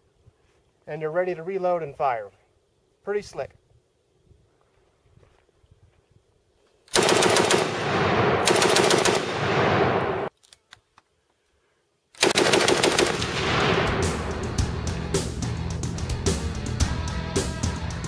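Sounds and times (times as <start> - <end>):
machine gun bursts: 6.9 - 10.3, 12.2 - 13.4.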